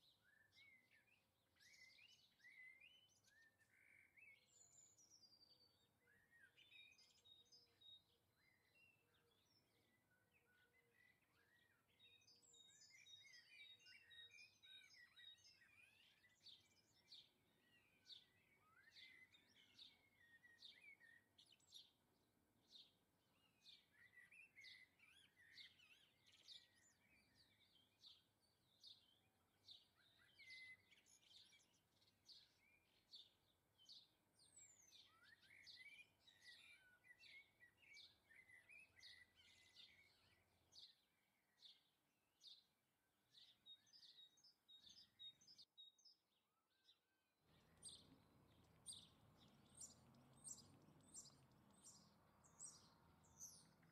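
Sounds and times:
songbirds chirping: 0.0s - 53.9s
lower bird twittering: 47.5s - 53.9s.

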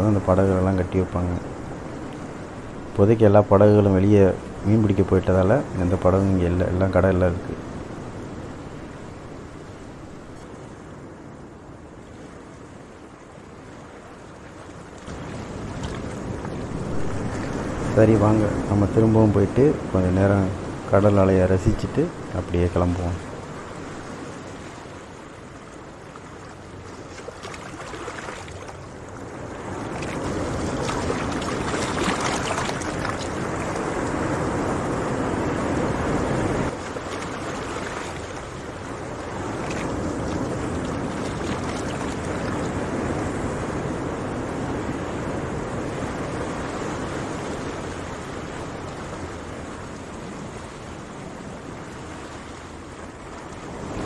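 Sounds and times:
sea surf washing on shore: 0.0s - 54.0s.

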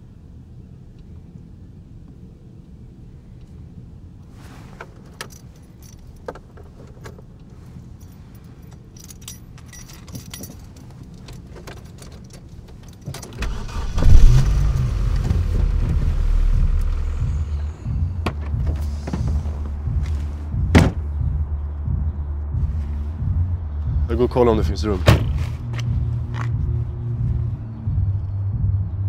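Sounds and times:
steady low hum: 0.0s - 29.0s
keys jangling: 5.1s - 13.8s
loud low rumble: 13.4s - 29.0s.

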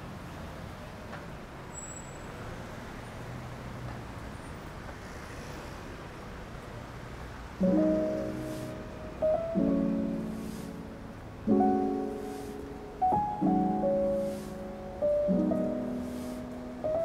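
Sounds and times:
street traffic hum: 0.0s - 17.0s
piano music: 7.6s - 17.0s.

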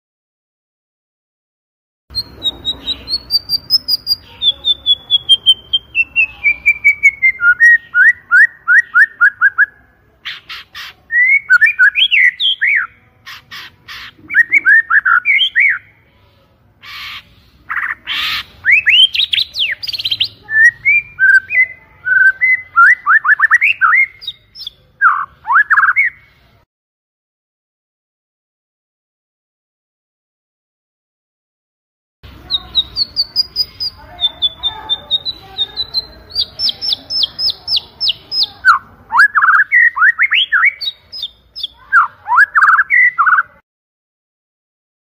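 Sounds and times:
bird singing whistled notes: 2.1s - 9.8s, 11.1s - 13.0s, 14.3s - 15.9s, 18.6s - 26.3s, 32.4s - 43.6s
harsh rasping bird calls: 2.1s - 15.9s, 16.8s - 26.1s, 32.3s - 43.4s.

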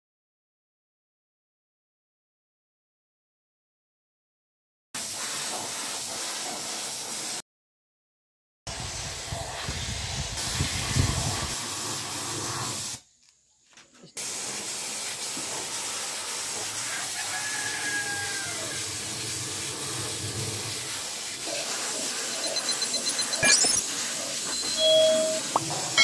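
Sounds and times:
steady hiss: 8.7s - 13.2s, 14.2s - 26.0s.

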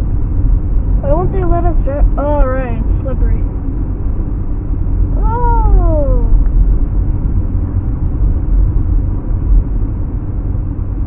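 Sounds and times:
car cabin road rumble: 0.0s - 11.0s.

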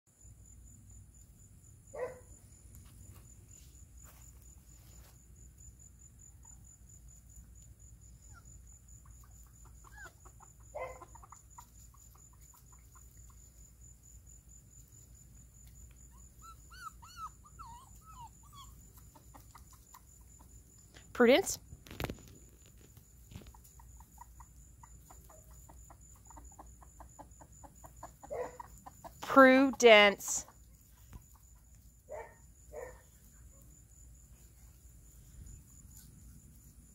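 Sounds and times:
hens clucking softly: 8.8s - 13.9s, 17.0s - 20.9s, 22.7s - 32.2s.

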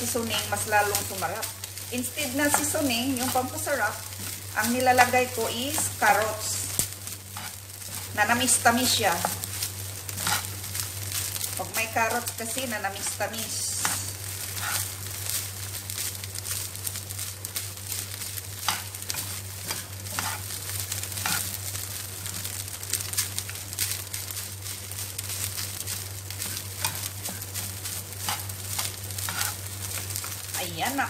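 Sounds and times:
rice sizzling in a pan: 0.0s - 31.0s
spatula scraping and tapping pan: 10.2s - 10.5s, 13.8s - 14.9s, 18.6s - 20.5s, 21.2s - 21.6s, 25.8s - 30.4s.

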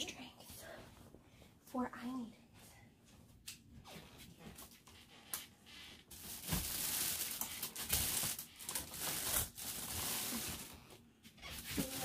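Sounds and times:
fabric rustling: 11.4s - 12.0s.

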